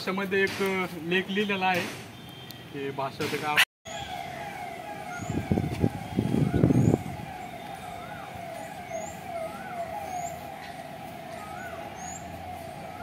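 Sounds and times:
birds calling: 3.9 - 13.0.

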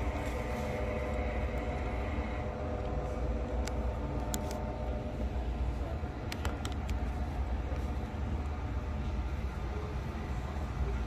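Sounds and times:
model trains rumbling: 0.0 - 11.0.

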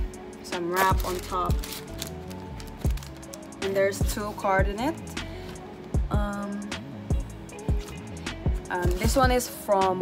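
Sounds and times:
music with drum beat: 6.0 - 10.0.

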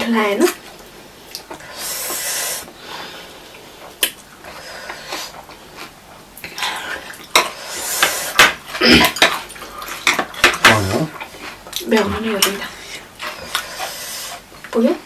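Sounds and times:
chewing: 3.4 - 14.8.

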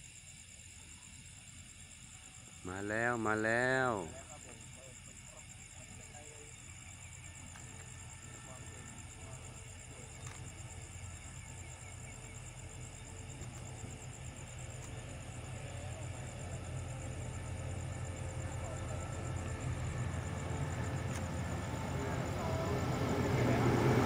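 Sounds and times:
locomotive rumble: 6.6 - 24.0.

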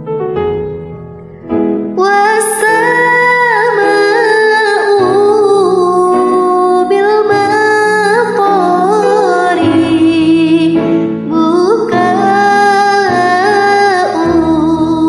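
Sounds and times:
soft instrumental backing: 0.0 - 15.0
woman singing: 1.9 - 15.0.

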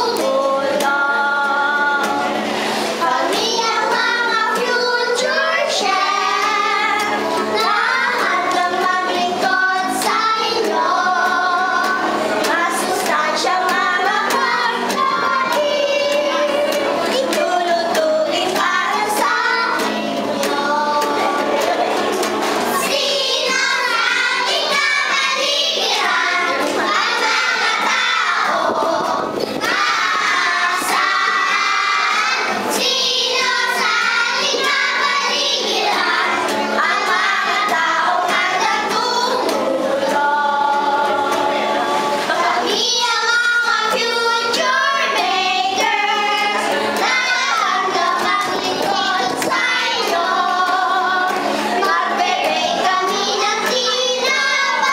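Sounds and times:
children singing together: 0.0 - 54.9.

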